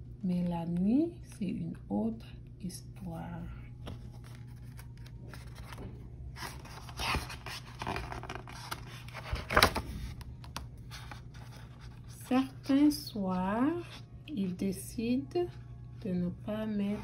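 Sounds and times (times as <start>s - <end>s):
paper page rustling: 3.8s - 12.5s.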